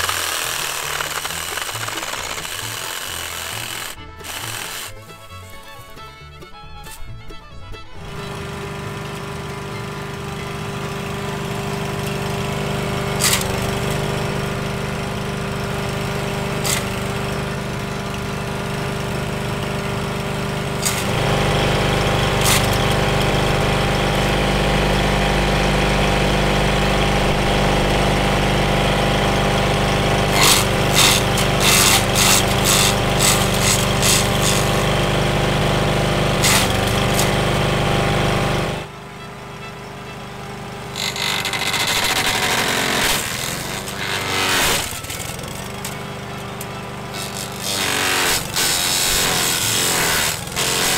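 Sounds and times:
branch cracking in chipper: 0:00.0 - 0:05.8, 0:13.2 - 0:14.1, 0:16.6 - 0:17.1, 0:20.8 - 0:23.7, 0:30.3 - 0:35.1, 0:36.4 - 0:37.4, 0:41.0 - 0:50.9
mower engine running: 0:00.0 - 0:50.9.

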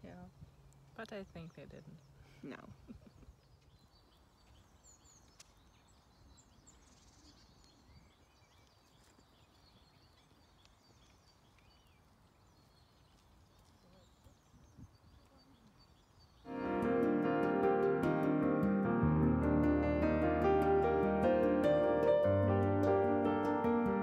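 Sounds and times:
faint bird chirps: 0:01.0 - 0:16.5.

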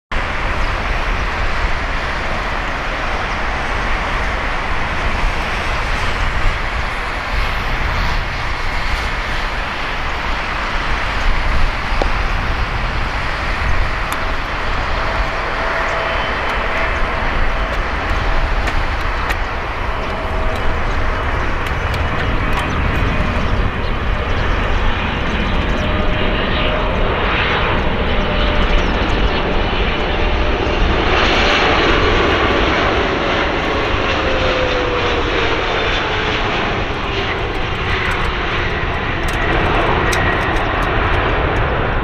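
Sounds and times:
faint jet whine: 0:00.1 - 0:42.0
jet engines rumbling: 0:00.1 - 0:42.0.

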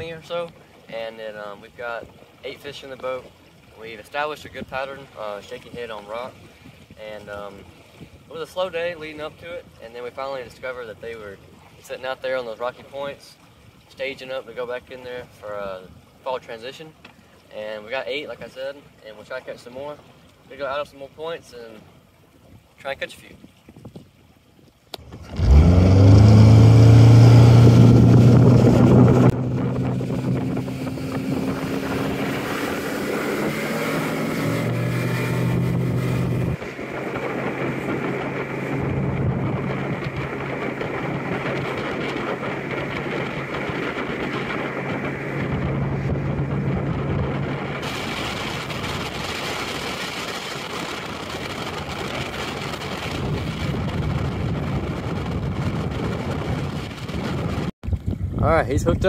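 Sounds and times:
wind and water rushing: 0:00.0 - 0:59.0
outboard motor revving: 0:24.9 - 0:57.7.

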